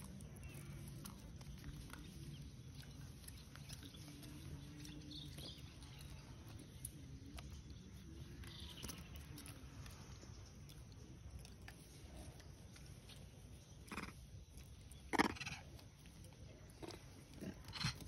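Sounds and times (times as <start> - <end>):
faint low animal calls: 0.0 - 18.0
low outdoor rumble: 0.0 - 18.0.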